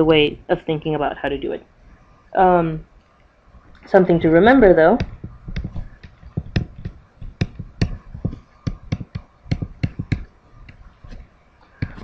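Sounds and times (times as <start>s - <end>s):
stylus tapping on tablet screen: 4.9s - 12.0s.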